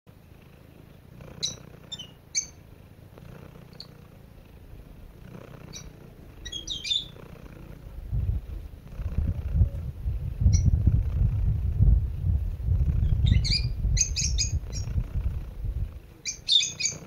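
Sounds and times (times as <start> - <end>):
cat purring: 0.1 - 17.0
high bird chirps: 1.4 - 2.6, 5.7 - 7.2, 13.1 - 14.9, 16.2 - 17.0.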